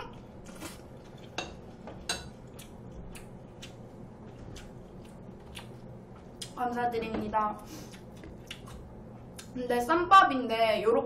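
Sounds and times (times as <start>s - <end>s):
person chewing food: 0.1s - 6.6s, 7.8s - 9.6s.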